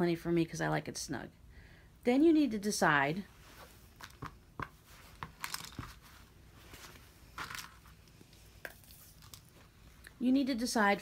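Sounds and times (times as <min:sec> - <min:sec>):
fabric rustling: 0:03.2 - 0:10.0.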